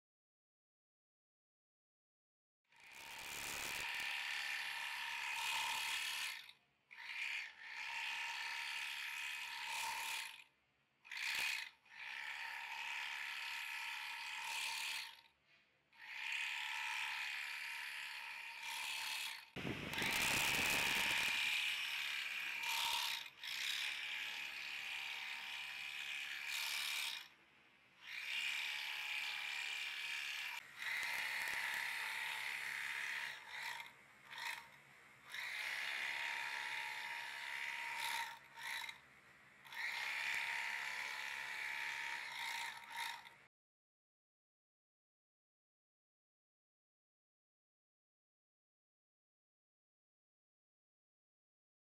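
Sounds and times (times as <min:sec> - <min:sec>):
sewing machine whirring: 0:02.8 - 0:10.4, 0:16.0 - 0:27.3, 0:28.0 - 0:39.0, 0:39.6 - 0:43.4.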